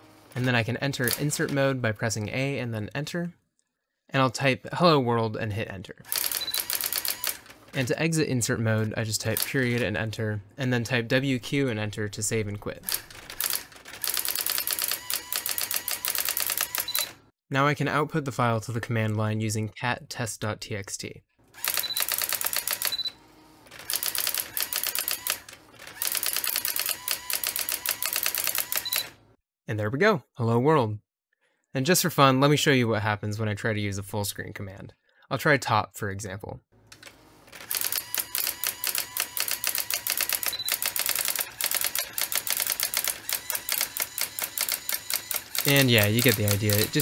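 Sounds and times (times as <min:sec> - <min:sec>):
typewriter daisy wheel printing: 0:00.3 - 0:01.6, 0:06.1 - 0:07.9, 0:12.8 - 0:17.2, 0:21.6 - 0:23.1, 0:23.7 - 0:29.2, 0:37.0 - 0:47.0.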